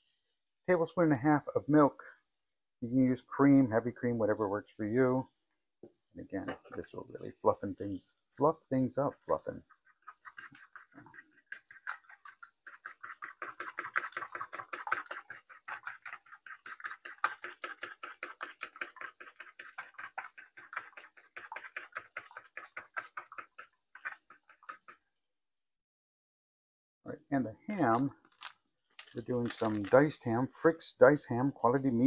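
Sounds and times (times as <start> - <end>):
fork beating eggs in bowl: 9.1 - 25.0.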